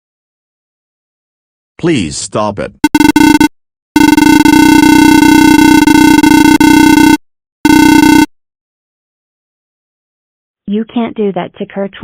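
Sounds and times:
harsh electronic buzzer: 2.8s - 8.3s.

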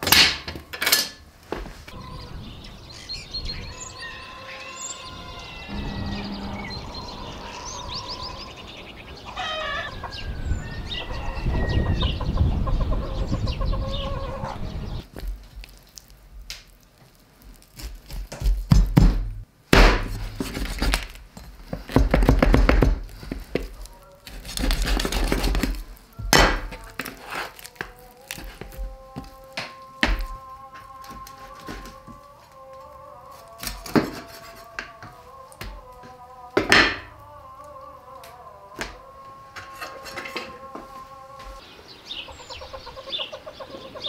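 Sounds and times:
bird calls: 1.9s - 15.1s, 41.5s - 44.0s
rooster crowing: 3.5s - 15.0s, 27.7s - 41.6s
hens clucking: 3.6s - 15.0s, 37.0s - 44.0s
loud knocks and thuds: 18.4s - 20.7s, 21.9s - 23.0s.

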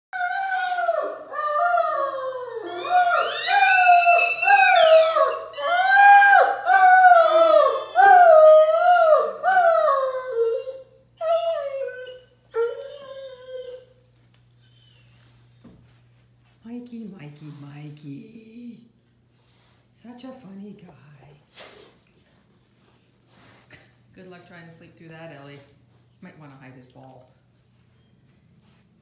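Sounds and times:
electronic toy howling: 0.3s - 1.1s, 2.6s - 8.4s.

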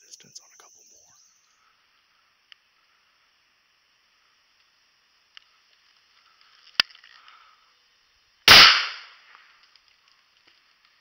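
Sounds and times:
shotgun blast: 8.5s - 9.2s.

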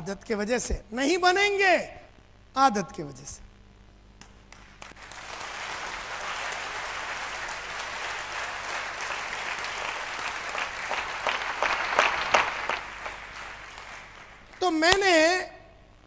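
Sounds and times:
audience applauding: 4.2s - 15.3s.

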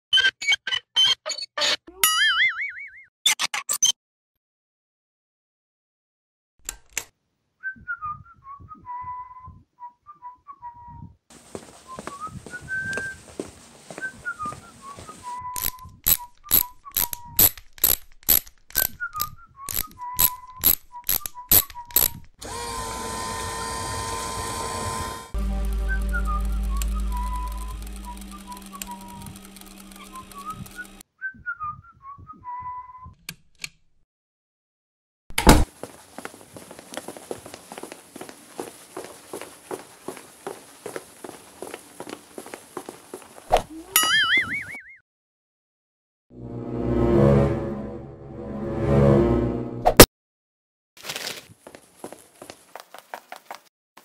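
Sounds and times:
person whistling a tune: 7.6s - 11.1s, 14.0s - 17.4s, 18.9s - 22.1s, 25.4s - 33.2s
sharp clicks: 15.6s - 22.3s, 25.4s - 31.0s
low hum: 24.1s - 31.0s.

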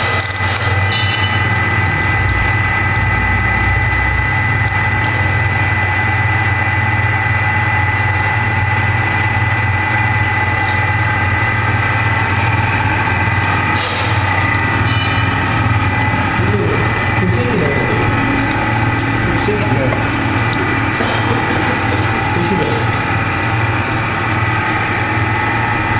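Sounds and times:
high whine: 0.0s - 25.9s
motor hum: 0.0s - 25.9s
water spray hissing: 15.5s - 25.9s.

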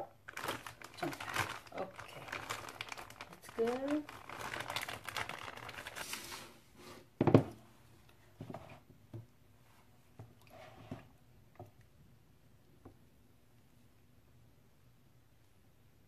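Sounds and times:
plastic crinkling: 0.0s - 6.6s.

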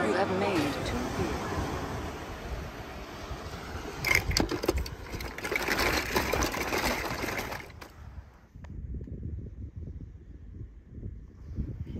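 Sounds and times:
metal toy cars clattering: 4.0s - 8.0s.

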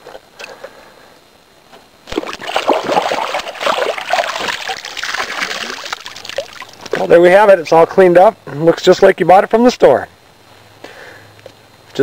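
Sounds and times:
water splashing and sloshing: 2.0s - 7.2s.

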